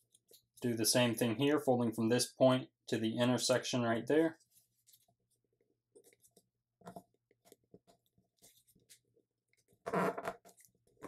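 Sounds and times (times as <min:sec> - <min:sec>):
paper rustling and crinkling: 0:04.4 - 0:05.4, 0:07.9 - 0:09.8.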